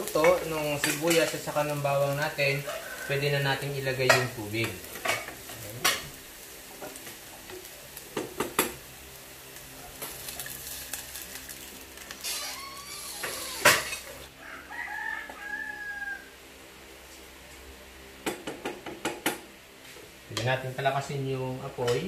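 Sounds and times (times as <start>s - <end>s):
spatula stirring sizzling food: 0.0s - 16.2s
water hissing in hot pan: 0.0s - 16.3s
rooster crowing: 2.4s - 3.8s, 12.2s - 16.5s.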